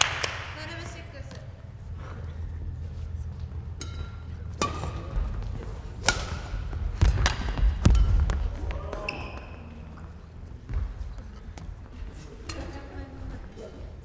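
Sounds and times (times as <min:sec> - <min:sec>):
racket hitting shuttlecock: 0:03.6 - 0:09.8
heavy footfalls on court floor: 0:05.0 - 0:09.6, 0:10.4 - 0:12.1.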